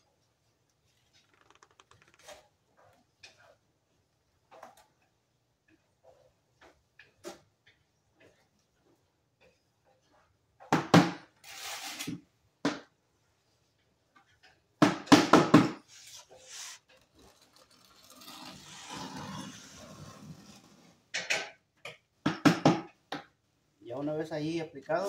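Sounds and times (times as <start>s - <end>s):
trowel scraping tile adhesive: 11.4s - 12.2s, 15.8s - 21.0s.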